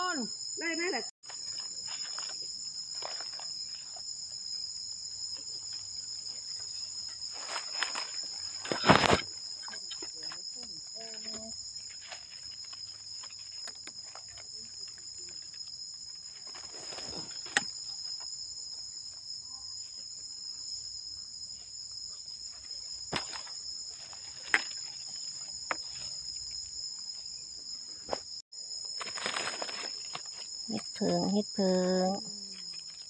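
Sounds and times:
insect chorus drone: 0.0 - 33.0
dry leaves rustling: 29.0 - 30.5.

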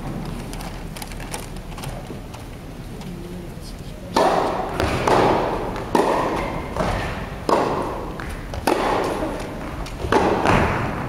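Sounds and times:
racket striking tennis ball: 4.1 - 11.0.

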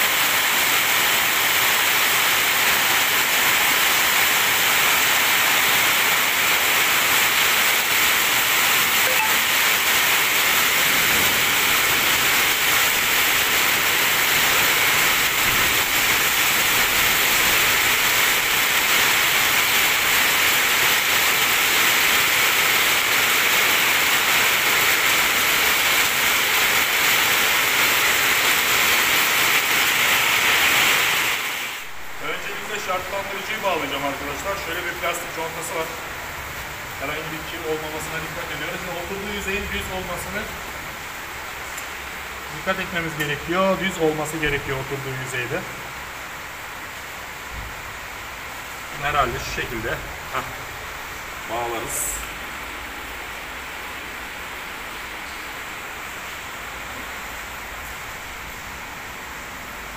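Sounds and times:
heavy rain on metal roof: 0.0 - 59.9.

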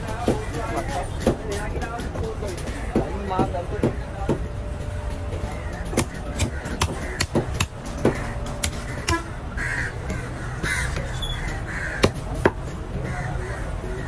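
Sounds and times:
crows cawing: 5.5 - 14.0.

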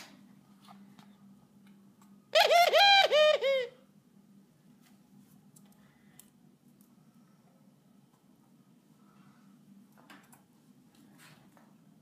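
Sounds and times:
mourning dove calling: 2.3 - 3.9.

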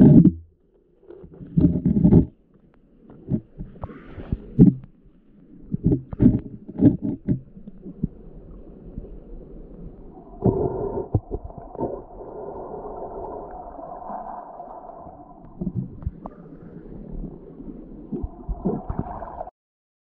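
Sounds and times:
dull underwater knocks: 0.0 - 0.5, 1.2 - 2.4, 3.2 - 5.0, 5.7 - 8.2
underwater current rushing: 5.7 - 19.5.

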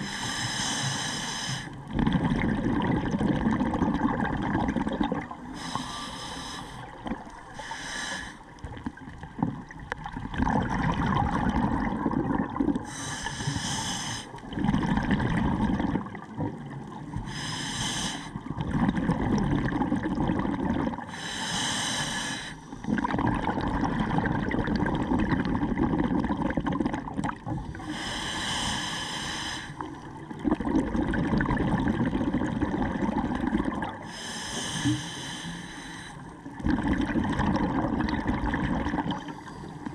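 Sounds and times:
regulator inhale hiss: 0.0 - 1.8, 5.6 - 8.5, 12.8 - 14.4, 17.2 - 18.4, 21.1 - 22.9, 27.7 - 29.9, 34.0 - 36.4
exhaled air bubbling underwater: 0.0 - 39.9.

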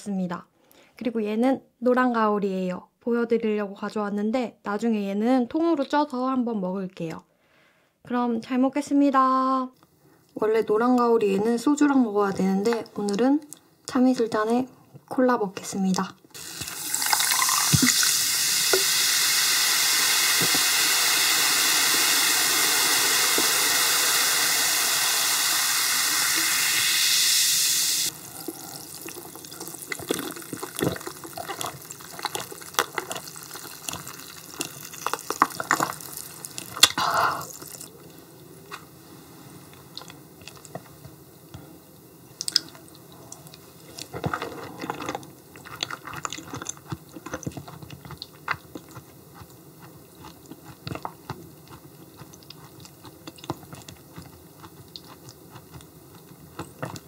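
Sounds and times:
cola pouring and fizzing: 16.3 - 37.9
chewing: 28.1 - 37.9, 39.8 - 41.0, 42.4 - 57.0.

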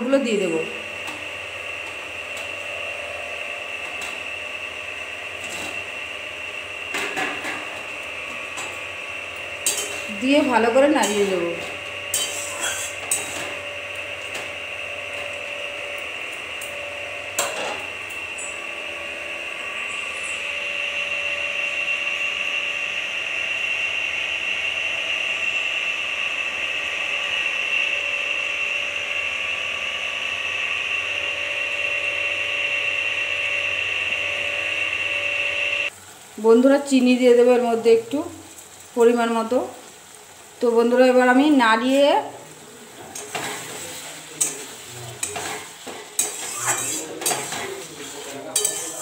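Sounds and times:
potatoes sizzling in oil: 0.1 - 49.0
spatula clinking on pan: 48.6 - 49.0.

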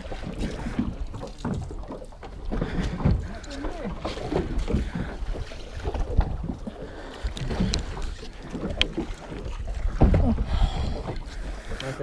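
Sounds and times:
water slapping boat hull: 0.0 - 12.0
wind rumbling on microphone: 2.4 - 11.8.

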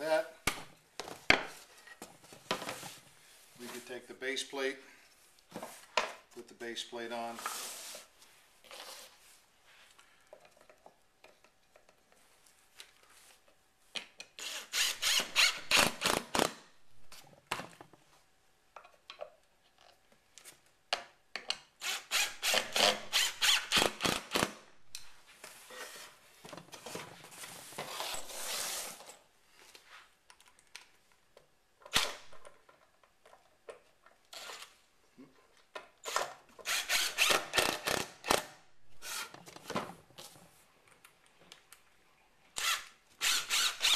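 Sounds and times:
impact driver hammering screws: 36.2 - 39.3.

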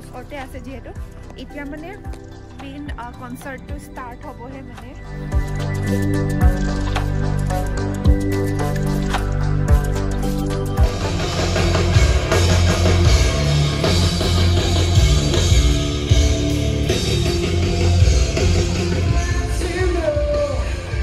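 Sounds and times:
drum kit beat: 4.8 - 21.0
rock band playing: 5.4 - 21.0.

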